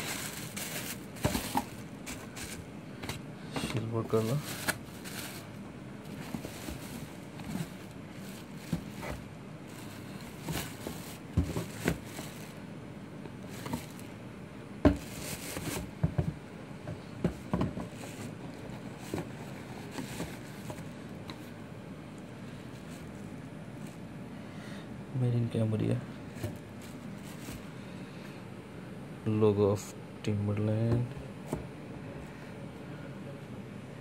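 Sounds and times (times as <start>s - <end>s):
plastic and paper crinkling: 0.0s - 3.2s, 3.8s - 12.6s, 13.4s - 14.1s, 14.9s - 16.0s, 17.3s - 21.5s, 22.6s - 24.0s, 26.3s - 27.8s.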